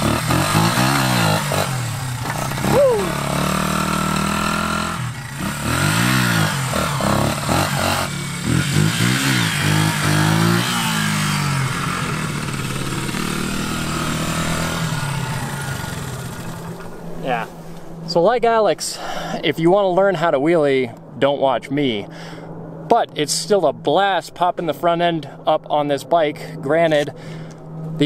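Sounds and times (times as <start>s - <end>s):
motorcycle engine revving: 0.0s - 17.2s.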